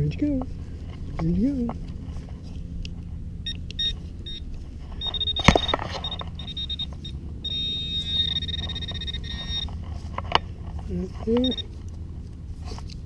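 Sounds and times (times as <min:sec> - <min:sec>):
metal detector pinpointer beeping: 0:03.4 - 0:09.8, 0:11.3 - 0:11.7.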